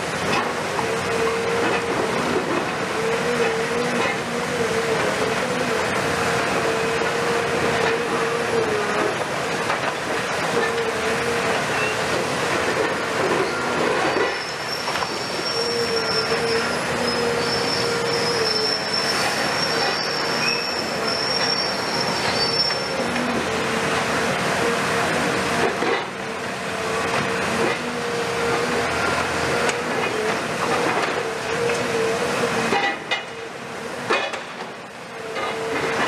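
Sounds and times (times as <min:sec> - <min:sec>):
diesel engine and hydraulics whining: 0:00.0 - 0:36.0
high-pitched squeal: 0:13.4 - 0:23.1.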